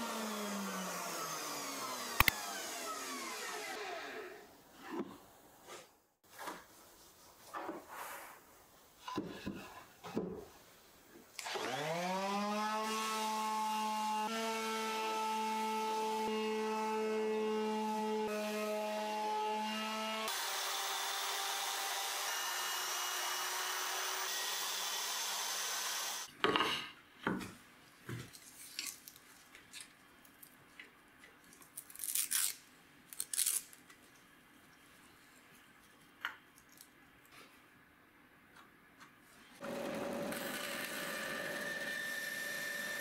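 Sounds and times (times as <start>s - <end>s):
palm sander motor hum: 0.0s - 4.4s, 39.6s - 43.0s.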